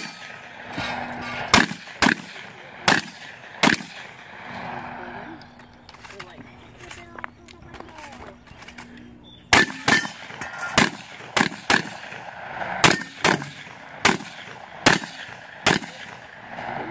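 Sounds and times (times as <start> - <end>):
shotgun shots: 0.0 - 4.4, 9.5 - 16.7.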